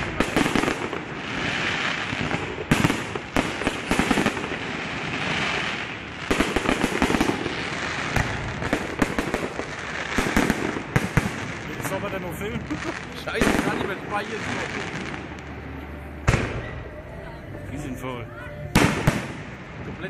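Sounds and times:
fireworks crackling: 0:00.0 - 0:17.8, 0:18.6 - 0:20.0.

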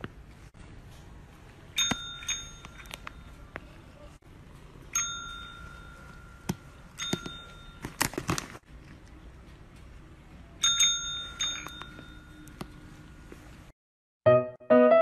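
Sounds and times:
service bell ringing: 0:01.8 - 0:02.9, 0:05.0 - 0:07.8, 0:10.6 - 0:12.5.

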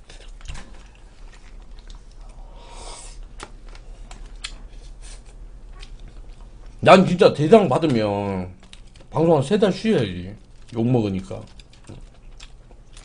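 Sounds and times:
chewing: 0:00.0 - 0:02.6, 0:03.2 - 0:06.8, 0:08.6 - 0:09.1, 0:10.4 - 0:13.0.

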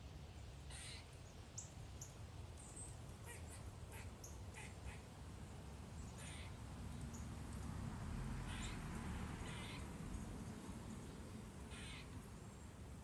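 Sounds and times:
crows cawing: 0:00.7 - 0:01.0, 0:06.2 - 0:06.6, 0:08.5 - 0:08.8, 0:09.4 - 0:09.8, 0:11.7 - 0:12.2.

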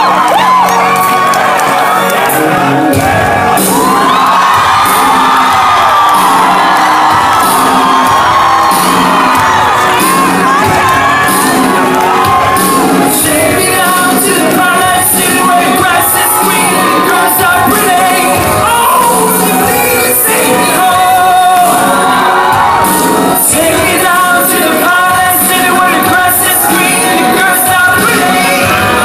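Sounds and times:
crowd shouting: 0:00.0 - 0:29.0
loud music with singing: 0:00.0 - 0:29.0.

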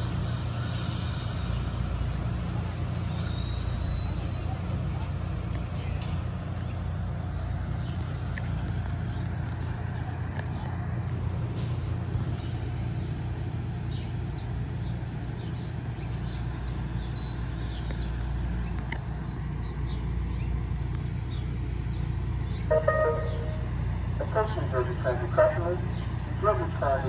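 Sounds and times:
electric train humming: 0:10.9 - 0:27.0.

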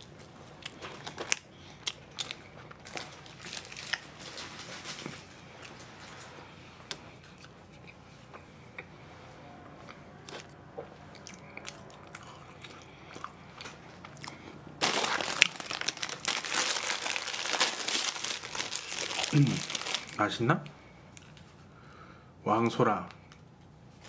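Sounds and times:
plastic bag crinkling: 0:02.2 - 0:05.2, 0:14.8 - 0:21.4.

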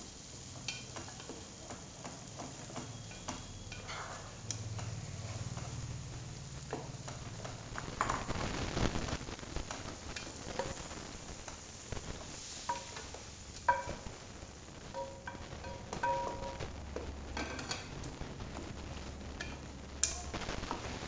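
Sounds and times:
low sizzle: 0:00.0 - 0:21.0
spatula knocking metal pot: 0:13.6 - 0:14.0, 0:14.9 - 0:16.6.

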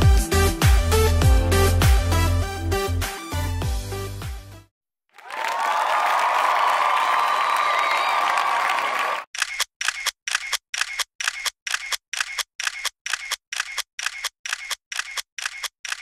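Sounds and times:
applause: 0:05.1 - 0:09.3.

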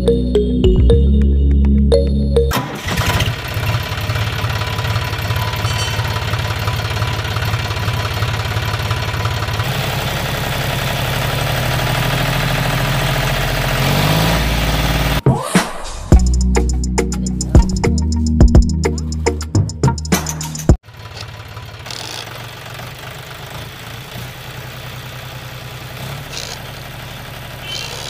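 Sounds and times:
toy motors whirring and rattling: 0:21.8 - 0:22.4, 0:26.0 - 0:26.7, 0:27.6 - 0:28.0.

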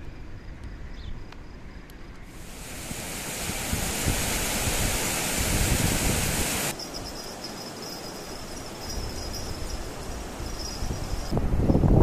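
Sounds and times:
loud rushing noise: 0:02.4 - 0:06.7.

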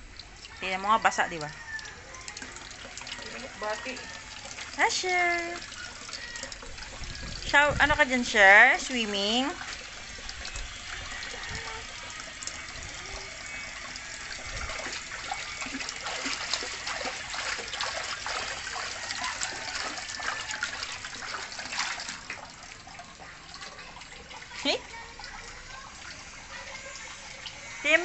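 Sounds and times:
water trickling from a tap: 0:00.0 - 0:28.0
child splashing in water: 0:10.7 - 0:27.4.

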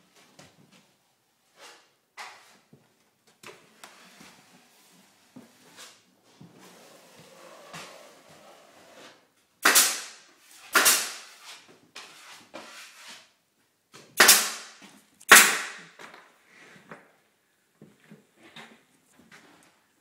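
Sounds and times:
loud sharp bangs in empty room: 0:09.6 - 0:11.3, 0:14.2 - 0:16.0.

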